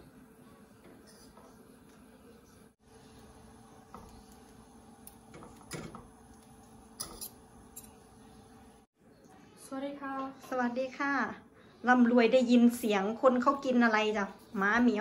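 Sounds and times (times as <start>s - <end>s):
metal forks scraping a wok: 7.0s - 8.0s.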